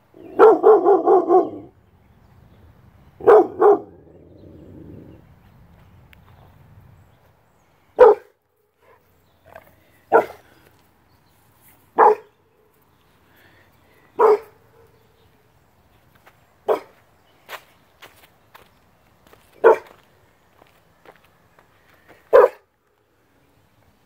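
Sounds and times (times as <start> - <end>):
puppy barking: 0.3 - 1.7, 3.2 - 4.1, 8.0 - 9.0, 10.1 - 10.4, 12.0 - 12.3, 14.2 - 14.9, 16.7 - 16.9, 19.6 - 19.9, 22.3 - 22.7.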